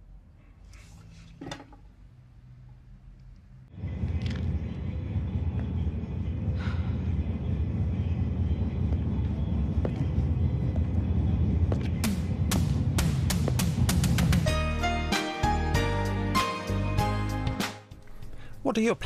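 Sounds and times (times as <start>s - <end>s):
low outdoor rumble: 1.8s - 14.4s.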